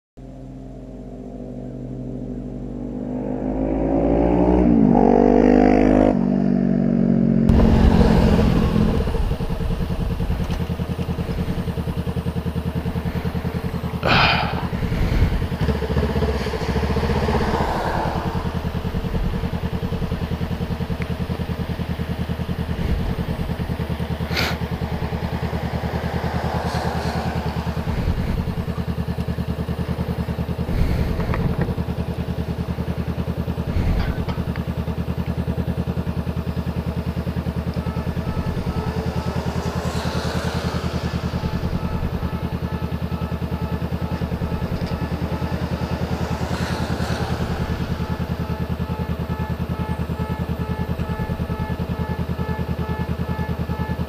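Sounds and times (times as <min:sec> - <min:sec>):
motorcycle engine at low revs: 0:00.2 - 0:54.0
gliding pitched sound: 0:00.4 - 0:06.2, 0:36.8 - 0:51.8.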